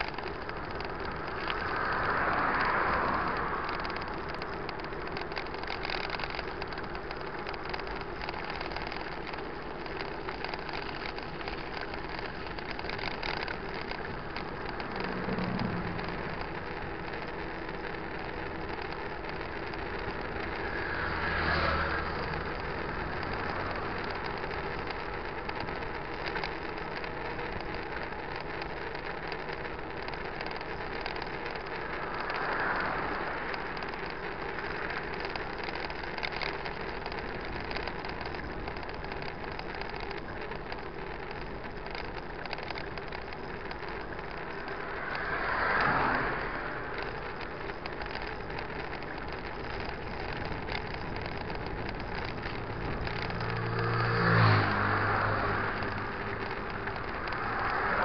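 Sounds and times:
road and wind noise: 0.0s - 58.0s
vehicle passing: 1.2s - 4.2s, 14.7s - 17.2s, 20.4s - 24.4s, 44.4s - 48.0s, 52.6s - 58.0s.

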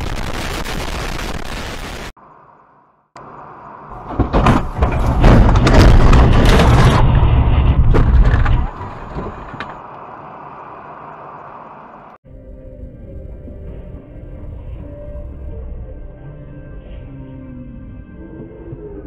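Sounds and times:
traffic noise: 2.2s - 6.2s, 7.2s - 12.2s
car crash crunching impacts: 3.9s - 9.8s
music: 12.2s - 19.0s.

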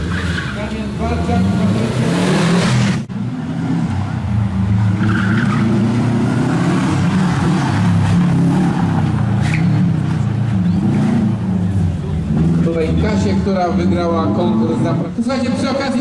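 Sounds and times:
rally car engine revving: 0.0s - 15.8s.

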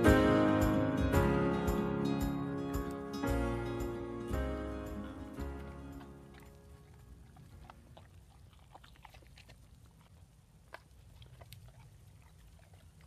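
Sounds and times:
dog chewing and licking: 5.0s - 13.0s.

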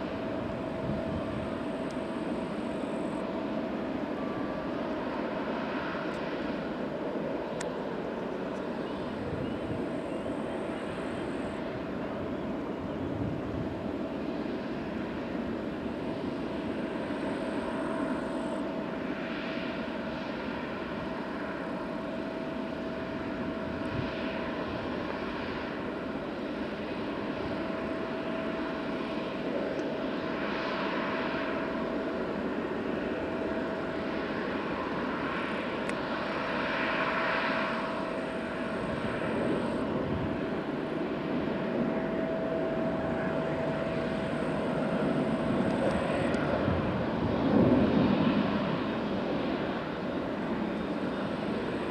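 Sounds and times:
jet engines running: 0.0s - 51.9s.

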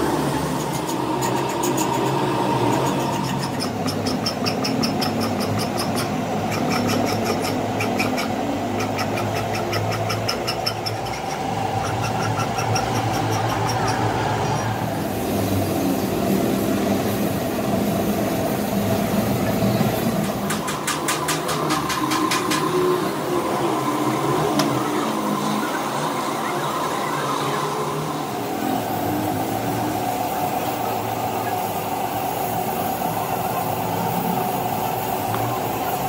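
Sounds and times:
steady machine drone: 0.0s - 36.0s
rapid high scratching ticks: 0.5s - 14.9s.

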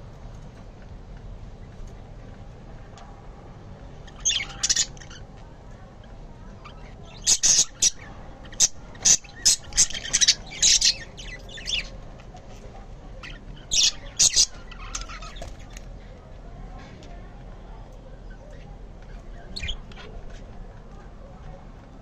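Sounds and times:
budgerigars chirping: 4.1s - 5.2s, 6.6s - 12.0s, 13.2s - 15.6s, 19.4s - 20.1s.

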